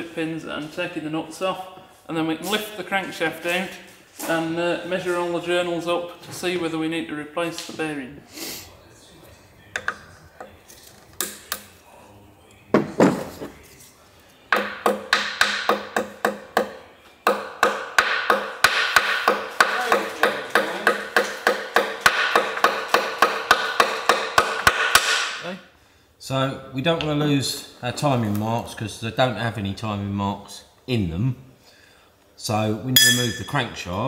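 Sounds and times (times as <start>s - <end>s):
metallic knocks: 33.0s - 33.7s.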